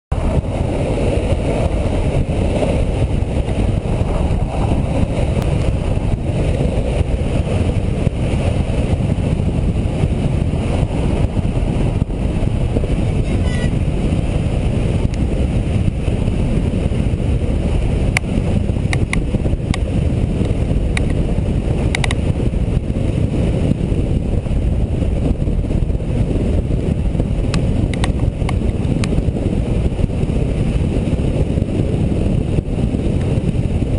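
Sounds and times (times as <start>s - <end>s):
skateboard wheels rolling on asphalt: 0.1s - 33.9s
wind buffeting microphone: 0.1s - 33.9s
sharp clicks: 21.9s - 22.2s.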